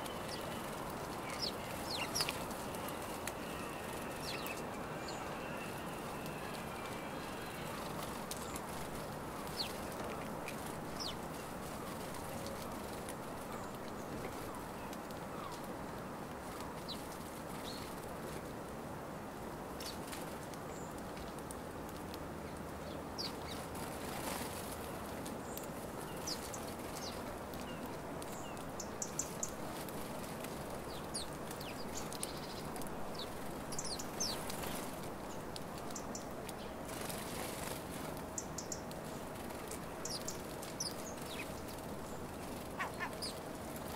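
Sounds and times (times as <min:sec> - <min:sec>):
sparrows chirping: 0:00.0 - 0:15.6, 0:25.4 - 0:43.9
wings fluttering: 0:00.0 - 0:15.7, 0:23.2 - 0:43.9
low background noise: 0:00.0 - 0:43.9.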